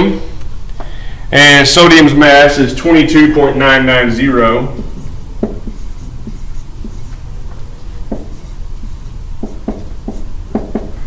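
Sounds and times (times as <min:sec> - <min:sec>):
steady low hum: 0:00.0 - 0:11.0
marker writing on whiteboard: 0:04.6 - 0:11.0.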